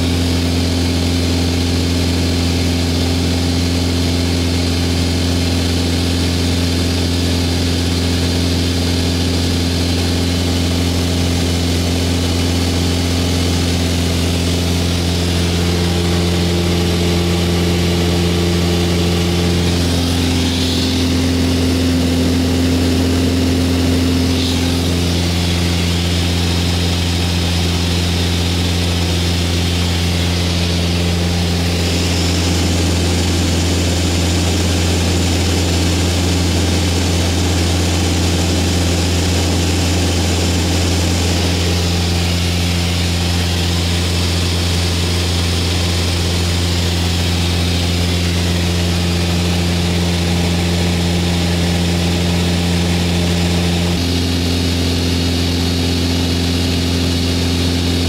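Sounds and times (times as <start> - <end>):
aircraft engine and propeller drone: 0.0 - 58.0.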